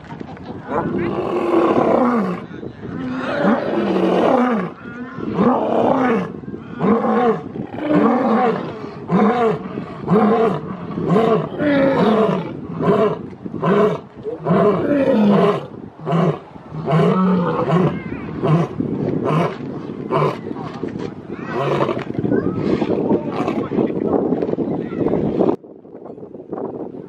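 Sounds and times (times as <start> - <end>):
lion roaring: 3.0 - 20.4.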